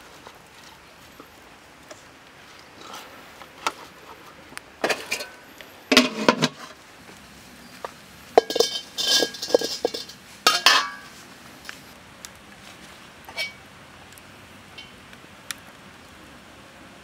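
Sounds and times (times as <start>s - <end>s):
metal lid clattering onto pot: 4.8s - 6.6s, 8.4s - 11.1s
metal ladle clinking on wok: 8.4s - 11.1s, 13.3s - 13.6s.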